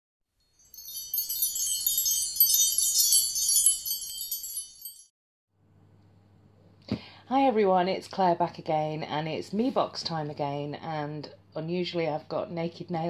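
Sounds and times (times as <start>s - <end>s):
high tinkling chimes: 0.4s - 5.1s.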